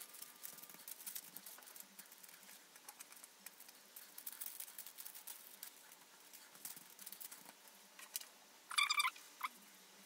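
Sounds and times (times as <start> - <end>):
baking paper crinkling and tapping: 0.0 - 8.3
brief high-pitched squeak: 8.7 - 9.5.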